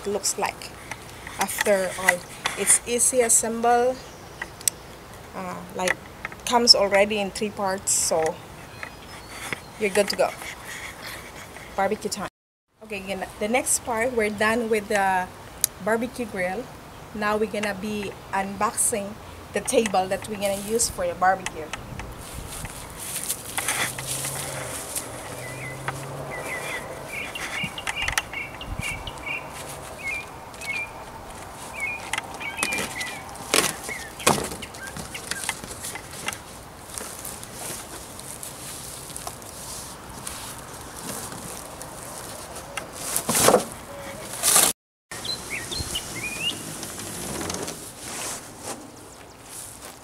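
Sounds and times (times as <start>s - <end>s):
small birds chirping: 0.0s - 12.2s, 17.4s - 43.0s, 45.1s - 47.0s
cardboard rustling and scraping: 22.2s - 28.0s, 28.9s - 44.7s, 46.0s - 50.0s.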